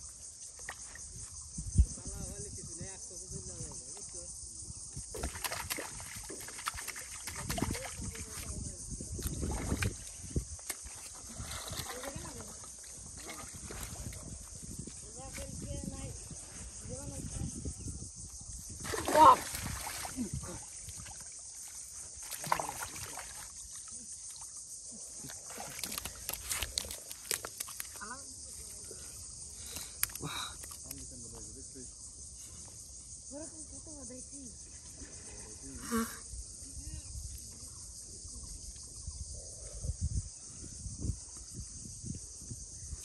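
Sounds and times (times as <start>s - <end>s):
insects chirring: 0.0s - 43.0s
feet sloshing through muddy water: 5.1s - 15.6s, 18.8s - 31.0s
hands digging in wet mud: 25.2s - 28.0s.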